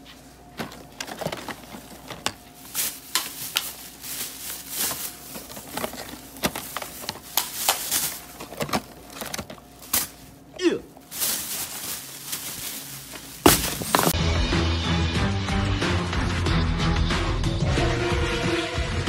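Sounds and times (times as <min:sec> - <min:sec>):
plastic bag rustling: 0:00.0 - 0:14.2.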